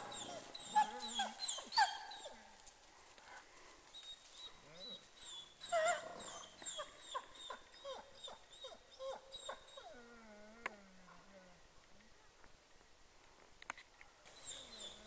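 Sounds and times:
wolves whimpering and yipping: 0:00.0 - 0:02.5, 0:04.0 - 0:10.8, 0:14.3 - 0:15.0.

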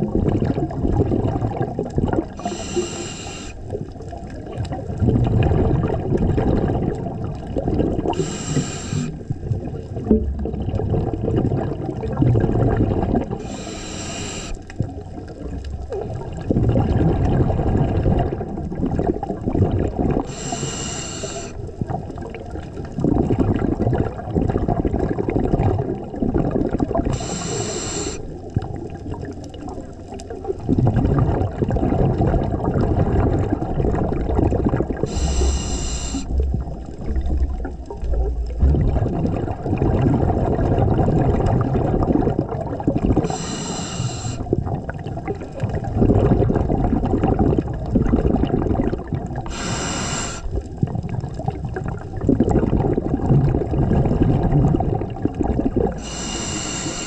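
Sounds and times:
bubbling exhalation: 0:00.0 - 0:57.0
regulator hissing inhalations: 0:02.4 - 0:03.6, 0:08.2 - 0:09.2, 0:13.4 - 0:14.6, 0:20.3 - 0:21.6, 0:27.1 - 0:28.3, 0:35.1 - 0:36.4, 0:43.2 - 0:44.4, 0:49.5 - 0:50.5, 0:56.0 - 0:57.0.

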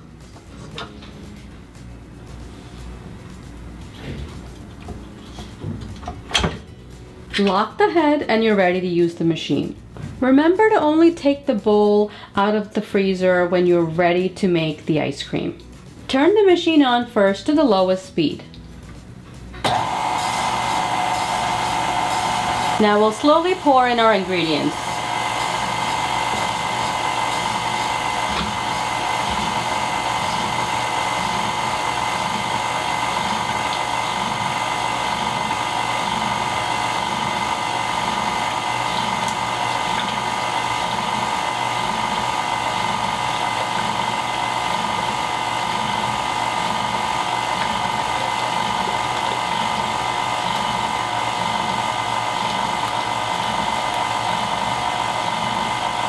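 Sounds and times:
stand mixer motor whine: 0:19.6 - 0:56.0.

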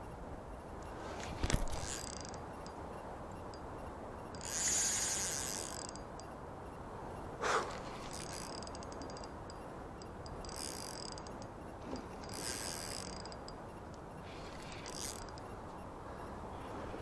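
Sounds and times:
fishing reel clicking: 0:01.4 - 0:02.8, 0:04.3 - 0:06.4, 0:08.0 - 0:15.6.

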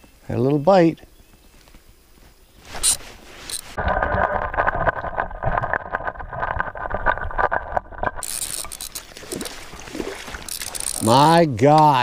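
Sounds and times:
stream noise: 0:02.6 - 0:12.0
underwater clicks: 0:03.9 - 0:12.0
spinning reel being cranked: 0:08.2 - 0:09.1, 0:10.5 - 0:11.2.

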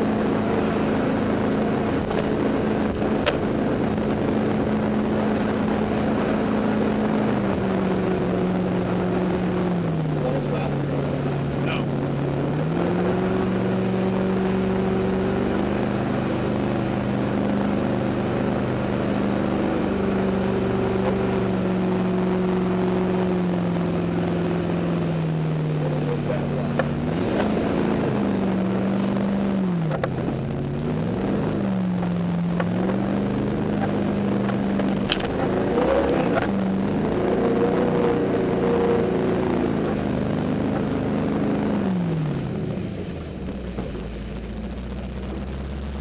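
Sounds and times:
boat engine running: 0:00.0 - 0:46.0.

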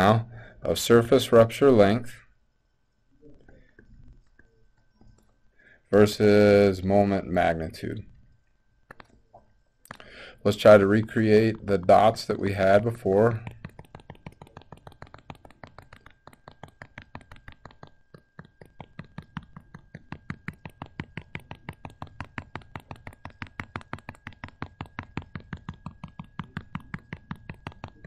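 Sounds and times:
stylus tapping on tablet: 0:08.8 - 0:10.2, 0:11.2 - 0:28.0.

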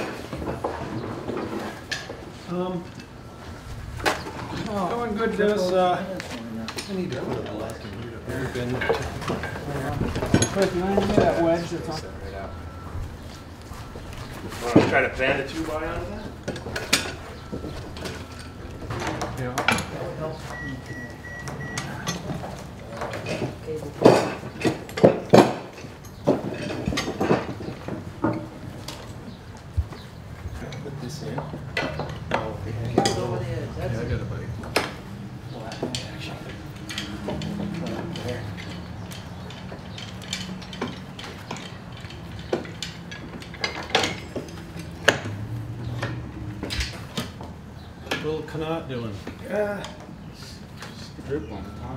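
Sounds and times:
metal clamps clinking: 0:06.7 - 0:12.8, 0:34.7 - 0:48.3.

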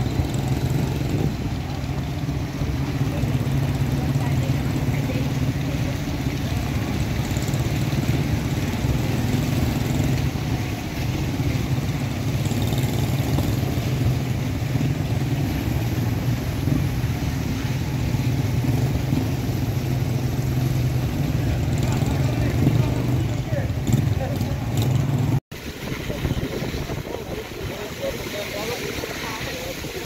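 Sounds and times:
road and wind hiss: 0:00.0 - 0:30.0
small motorcycle engine running: 0:00.0 - 0:30.0.

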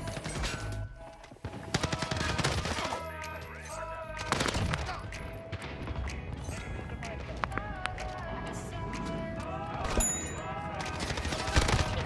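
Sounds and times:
music: 0:00.0 - 0:12.0
rapid gunfire: 0:01.6 - 0:02.9, 0:10.9 - 0:12.0.

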